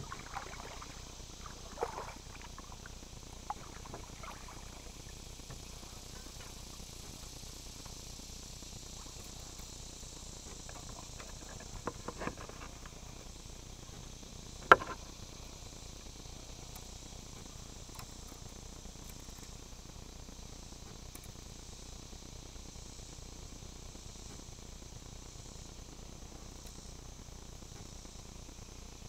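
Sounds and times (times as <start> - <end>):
high-pitched insect chorus: 0.0 - 29.0.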